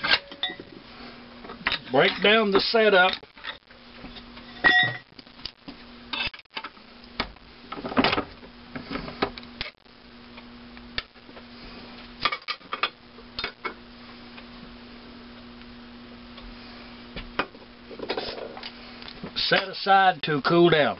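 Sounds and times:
metal clanks and clinks: 0.0s - 0.7s, 4.5s - 5.1s
faint steady hum: 0.0s - 20.9s.

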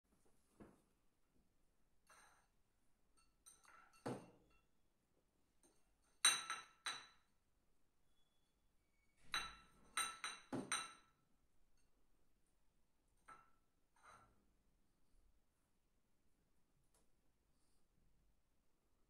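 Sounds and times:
dish clinking on tiled floor: 3.2s - 4.7s, 6.2s - 7.3s, 9.2s - 11.2s.

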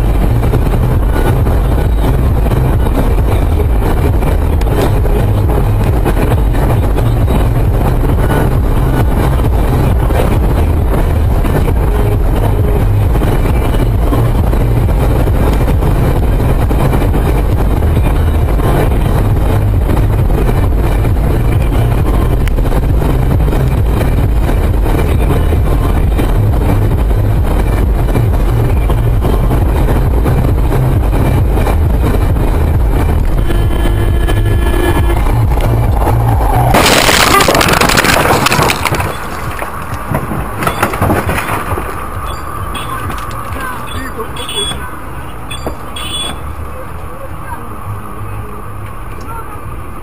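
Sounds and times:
clattering and rushing noise: 0.0s - 47.0s
car cabin low rumble: 0.0s - 50.0s
car crashing with crunching impacts: 36.6s - 42.1s.

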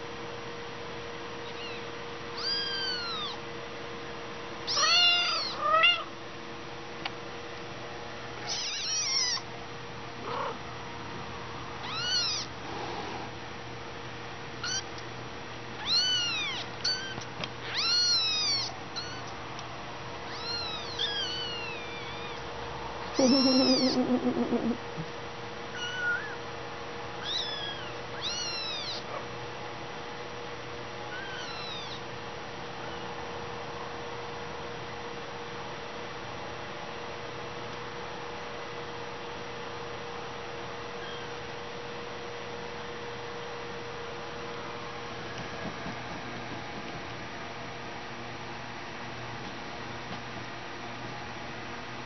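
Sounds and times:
kittens mewing: 1.4s - 3.4s, 4.7s - 6.1s, 8.4s - 9.5s, 10.2s - 10.6s, 11.8s - 12.5s, 14.6s - 14.9s, 15.8s - 19.3s, 20.3s - 22.5s, 23.1s - 25.1s, 25.8s - 26.4s, 27.2s - 29.3s, 31.1s - 32.0s.

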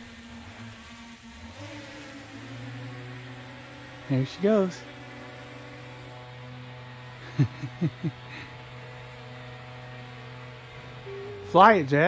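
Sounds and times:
drone propellers humming: 0.0s - 12.0s
short falling-pitch sounds: 11.0s - 11.8s.

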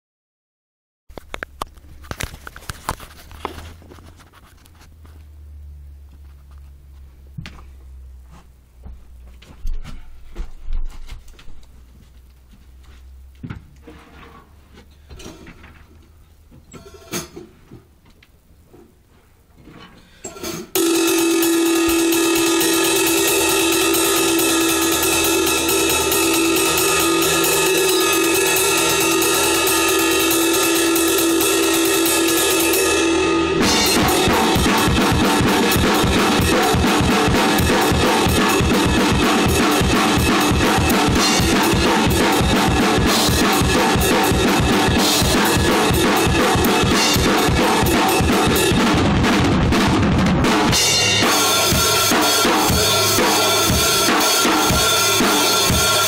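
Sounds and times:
drum kit playing loud: 20.7s - 56.0s.

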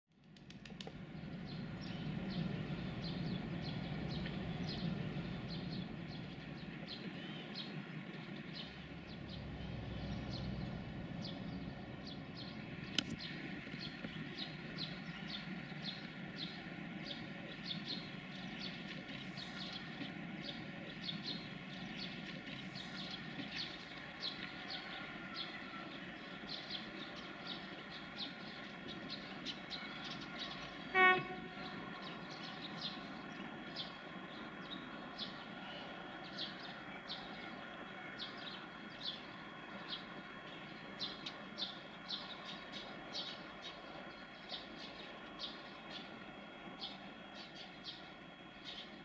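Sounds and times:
small birds chirping: 0.3s - 49.0s
low rumble: 7.9s - 13.0s.

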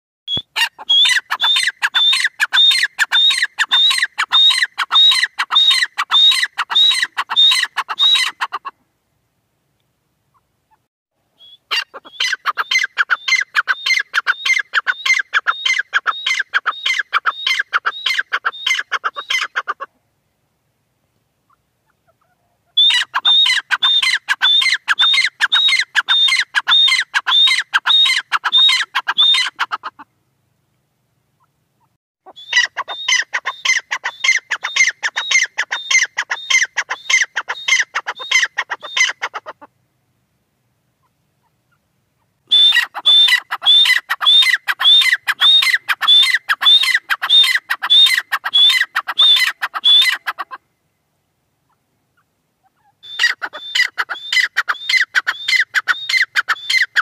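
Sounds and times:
bird calling shrill notes: 0.3s - 8.6s, 11.4s - 19.5s, 22.8s - 29.8s, 32.3s - 39.3s, 42.4s - 50.3s, 52.8s - 57.0s.

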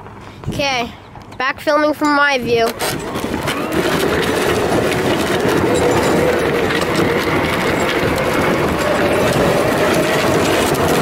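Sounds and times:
toy car rattling on gravel: 2.3s - 11.0s.

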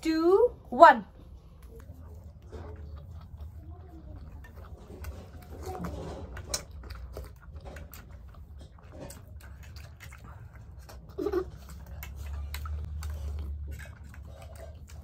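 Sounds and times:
people chewing: 1.1s - 15.0s.

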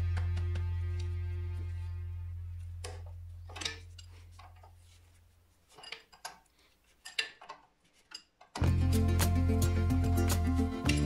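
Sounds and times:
background music: 0.0s - 3.8s, 8.6s - 11.0s.

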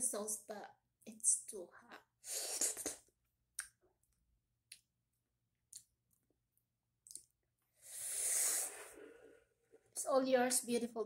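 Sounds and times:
wet mouth clicks and lip smacks: 2.7s - 3.8s, 4.7s - 4.9s, 5.7s - 6.0s, 7.0s - 7.3s
sharp breathy exhale: 7.8s - 9.6s.

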